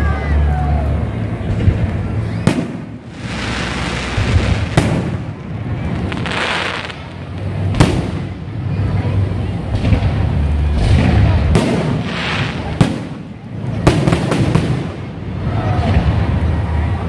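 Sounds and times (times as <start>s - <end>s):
firework bangs: 1.4s - 8.9s, 9.6s - 16.9s
crackling hiss of firework stars: 1.8s - 8.7s, 9.8s - 16.4s.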